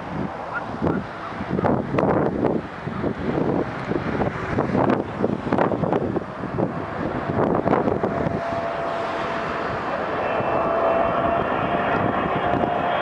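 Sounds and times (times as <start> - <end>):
jet engines whining: 0.0 - 13.0
wind on microphone: 0.0 - 13.0.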